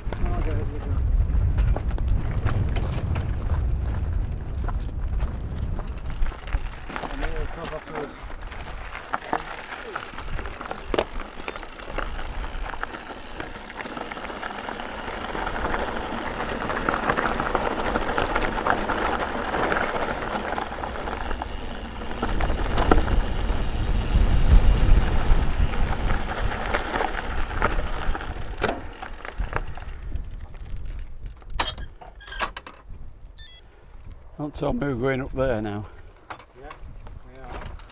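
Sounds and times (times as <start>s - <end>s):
wind rumble on microphone: 0.0s - 7.6s, 22.0s - 32.0s, 32.8s - 35.6s, 36.7s - 37.9s
bike tyres rattling on trail: 0.0s - 32.2s, 35.4s - 37.9s.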